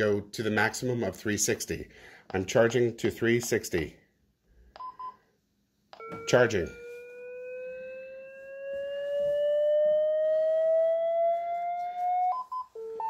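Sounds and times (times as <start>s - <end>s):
alternating high and low beeps: 4.8s - 5.2s, 6.0s - 13.0s
rising defibrillator charging tone: 6.0s - 13.0s.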